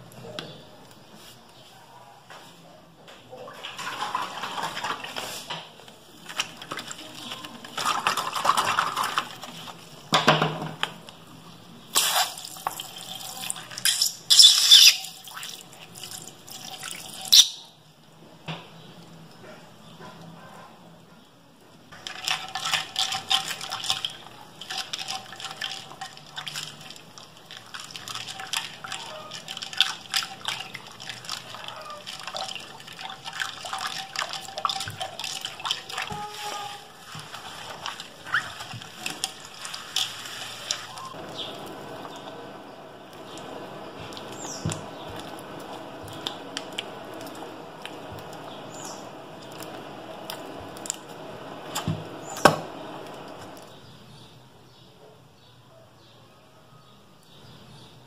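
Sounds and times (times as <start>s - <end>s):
slime squishing and sloshing: 3.5s - 10.1s, 22.0s - 53.8s
slime squelching: 3.8s - 10.1s, 22.0s - 52.5s.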